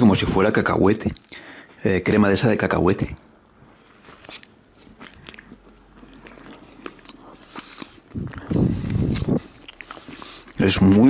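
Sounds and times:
chewing bread: 3.8 - 11.0.

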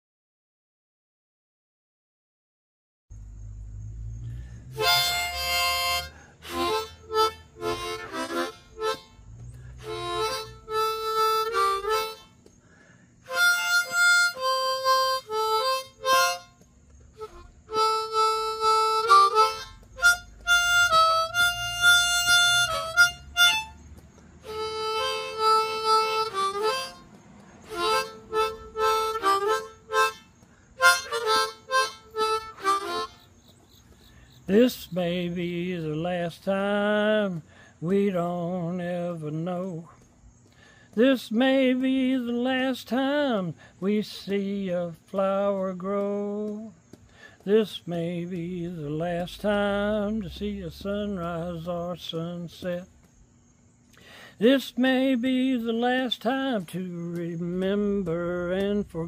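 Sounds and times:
harmonica melody: 4.7 - 12.5, 13.2 - 35.6.

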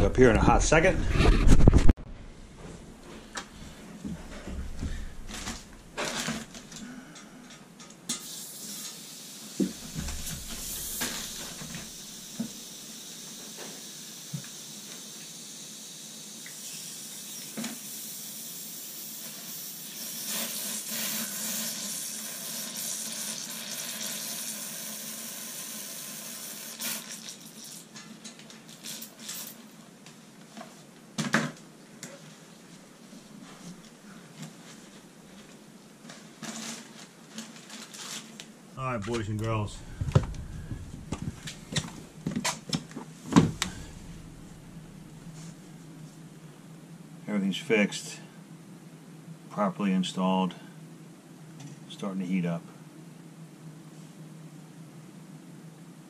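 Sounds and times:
air hissing from valve: 8.2 - 27.7
water spitting into bucket: 8.2 - 28.0, 28.7 - 29.6.

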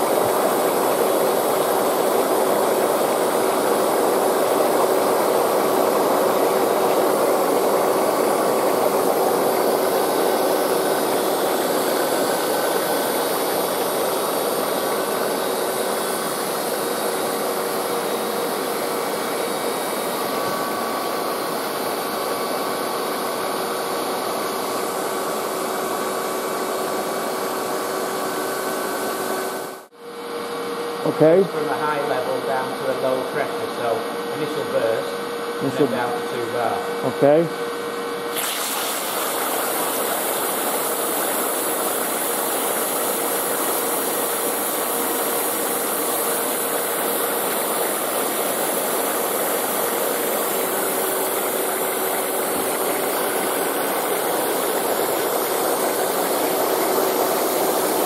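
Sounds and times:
water jetting with rushing hiss: 0.0 - 29.8, 38.2 - 58.0.

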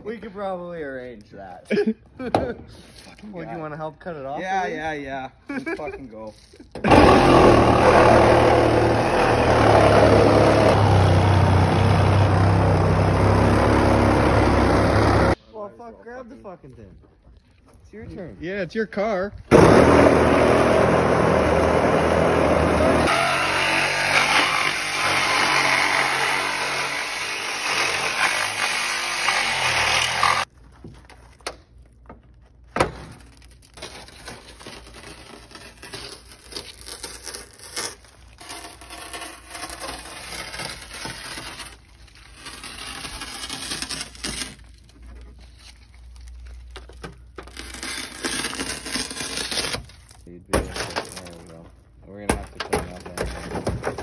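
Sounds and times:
power saw cutting steel: 6.8 - 15.4, 19.5 - 30.5
shattered glass scraping and crunching: 33.2 - 51.6.

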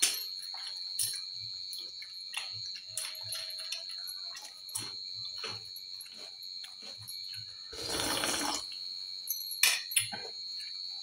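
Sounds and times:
clinks on a steel plate: 9.3 - 10.4.

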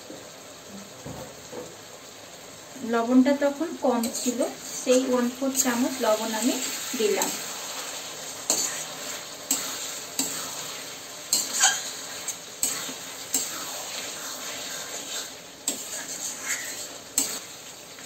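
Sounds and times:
meat sizzling in oil: 0.0 - 18.0
metal spatula scraping pan: 4.0 - 5.3, 8.3 - 17.6.

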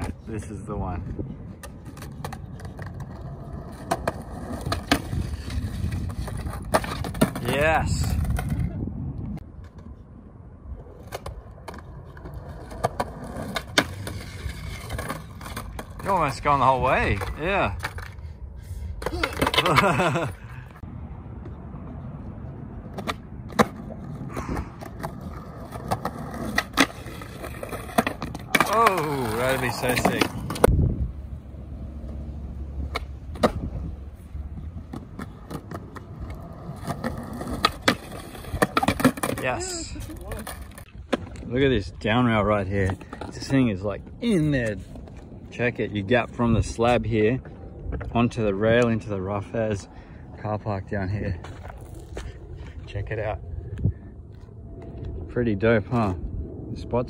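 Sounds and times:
skateboard wheels rolling on concrete: 0.0 - 57.0
skateboard clacks: 1.5 - 8.7, 22.9 - 30.7, 34.6 - 41.4.

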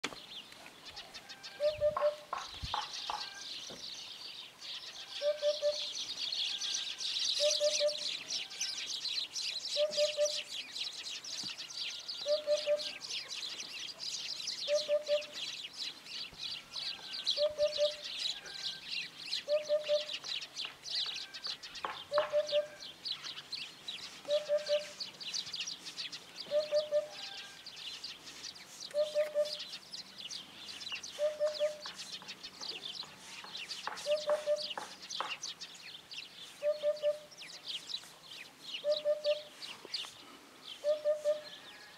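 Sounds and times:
hoopoe hooping call: 1.0 - 3.5, 5.2 - 6.0, 7.4 - 8.8, 9.7 - 10.5, 12.2 - 13.1, 14.6 - 15.4, 17.3 - 18.2, 19.4 - 20.2, 22.0 - 22.9, 24.2 - 25.1, 26.4 - 27.6, 28.9 - 29.7, 31.2 - 32.0, 33.2 - 34.9, 36.6 - 37.3, 38.8 - 39.6, 40.8 - 41.6.

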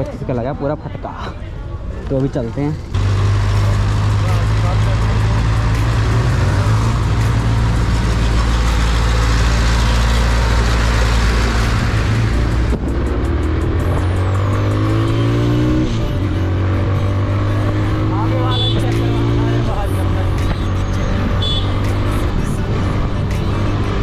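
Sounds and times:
motorcycle engine drone: 2.6 - 24.0.

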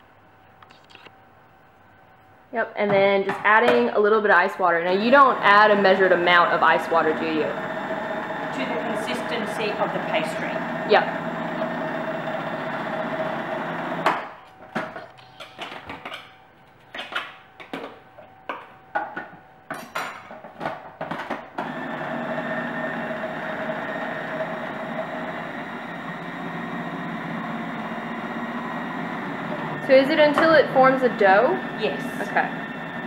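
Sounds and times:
food processor motor running: 4.9 - 14.1, 21.6 - 33.0
knocks and clattering: 14.0 - 21.6.

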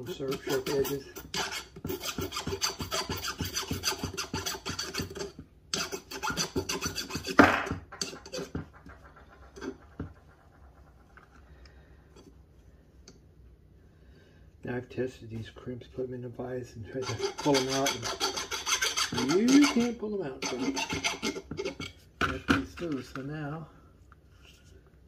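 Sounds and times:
hand file scraping metal: 0.0 - 11.1, 16.9 - 22.0.

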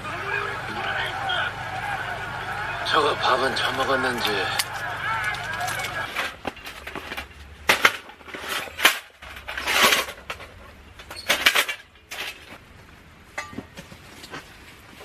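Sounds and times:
metal scraping: 3.5 - 12.6
metal clanks: 4.5 - 12.6, 13.3 - 13.9.

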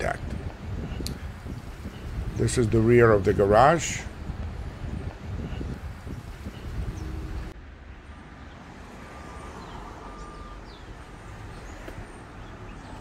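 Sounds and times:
distant traffic hum: 0.0 - 13.0.

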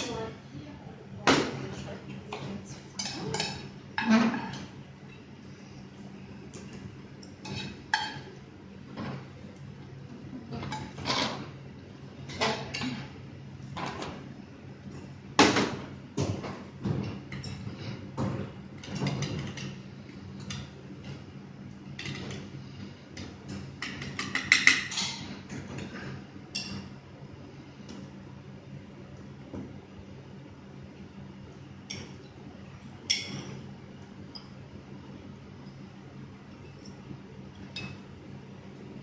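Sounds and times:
low steady hum: 0.0 - 39.0.

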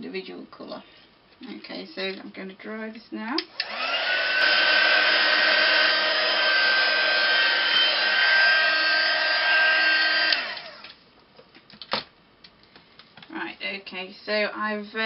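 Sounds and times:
heat tool fan whirring: 3.4 - 11.0.

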